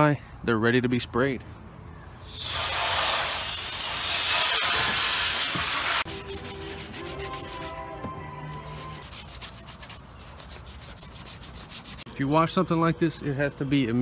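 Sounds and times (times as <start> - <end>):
hose spraying water on plastic: 2.3 - 6.1
brush scrubbing wet plastic: 4.3 - 7.8, 8.6 - 12.1.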